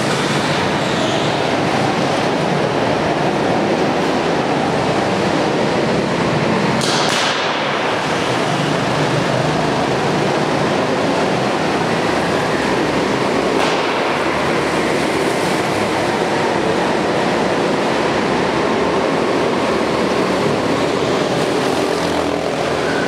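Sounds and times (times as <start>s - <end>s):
go-kart engines droning: 0.0s - 23.0s.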